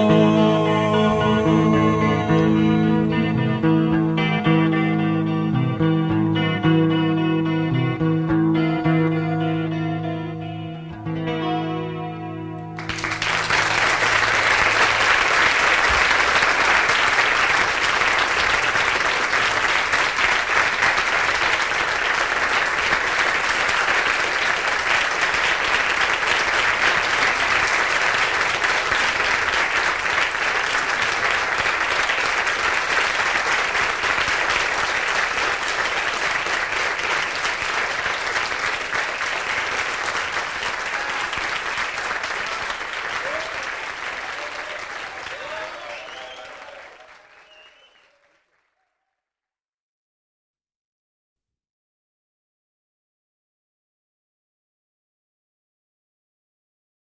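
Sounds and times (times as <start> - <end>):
guitar notes: 0.0 - 13.7
audience applauding: 12.8 - 49.0.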